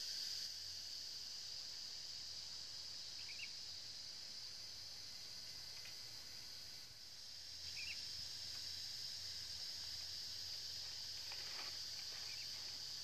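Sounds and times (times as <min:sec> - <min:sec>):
high-pitched insect chorus: 0:00.0 - 0:13.0.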